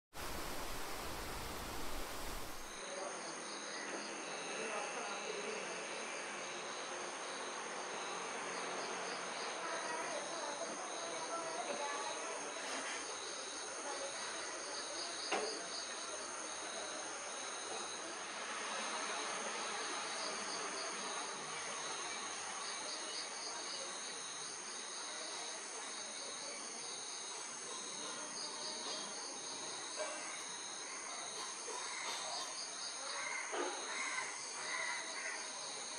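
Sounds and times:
faint ambient hiss: 0.1s - 3.7s
even rushing noise: 0.2s - 2.8s
chirping insect chorus: 0.2s - 18.0s, 18.6s - 35.9s.

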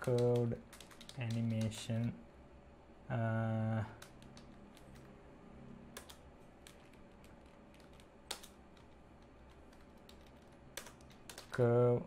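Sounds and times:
computer keyboard typing: 0.0s - 2.2s, 4.0s - 5.1s, 5.9s - 11.6s.

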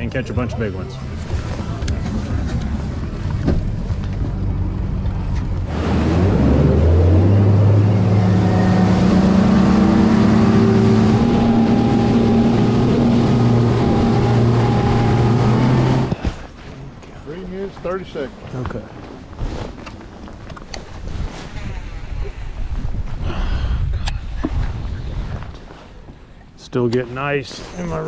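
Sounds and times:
outboard motor revving up: 5.5s - 16.2s
wind rushing over microphone: 20.8s - 25.8s.

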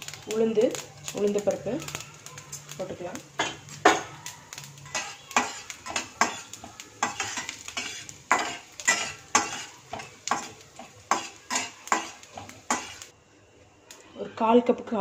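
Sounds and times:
lentils sizzling in oil: 0.0s - 15.0s
spatula scraping metal pan: 3.3s - 13.1s.

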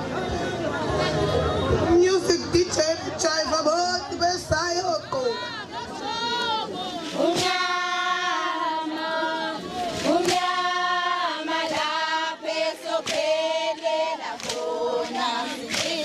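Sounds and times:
women singing in chorus: 5.3s - 16.0s.

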